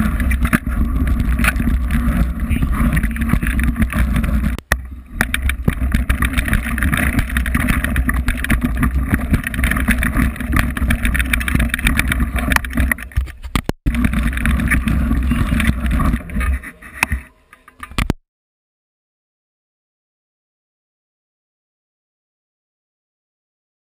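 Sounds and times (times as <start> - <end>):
wind rumbling on microphone: 0.0 - 18.1
bike rattling clicks: 5.2 - 16.4.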